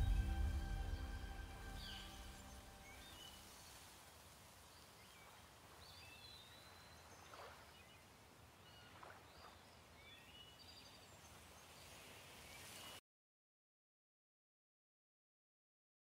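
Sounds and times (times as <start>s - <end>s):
soft hiss: 0.0s - 5.9s, 11.1s - 13.0s.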